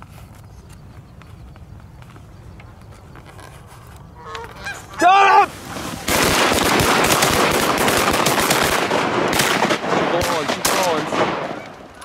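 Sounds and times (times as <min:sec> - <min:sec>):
geese honking: 0:04.1 - 0:06.1.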